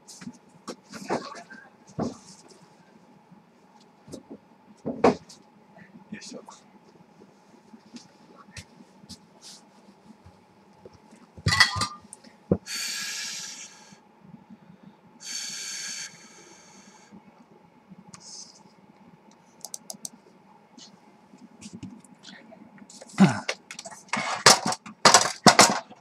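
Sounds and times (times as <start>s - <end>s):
faint electrical hum: 0.0s - 26.0s
computer mouse clicks: 19.6s - 20.2s.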